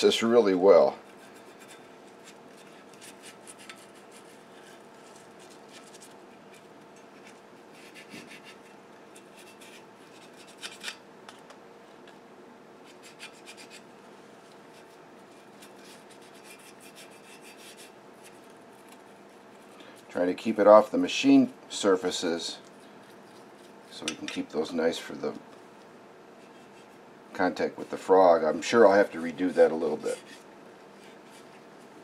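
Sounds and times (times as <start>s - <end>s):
paintbrush scratching on metal: 1.0s - 11.0s, 12.8s - 13.9s, 14.7s - 19.8s, 28.6s - 30.4s.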